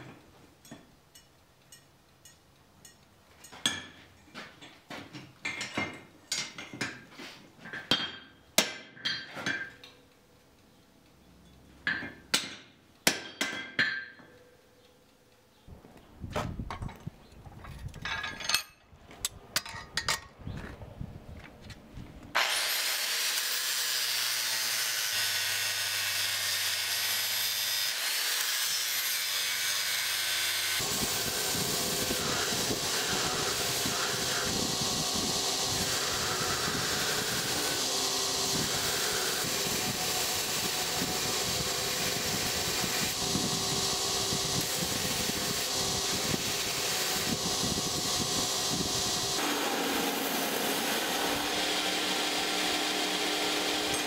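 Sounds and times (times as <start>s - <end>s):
hammer striking steel on anvil: 0.0s - 4.0s, 7.8s - 10.0s, 11.8s - 14.6s
belt grinder whirring: 22.4s - 54.0s
steel grinding on belt: 22.4s - 54.0s.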